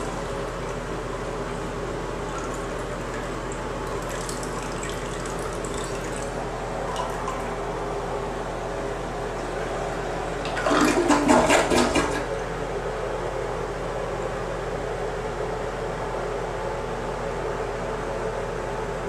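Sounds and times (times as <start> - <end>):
toilet flushing: 0.0 - 7.9, 9.1 - 12.5.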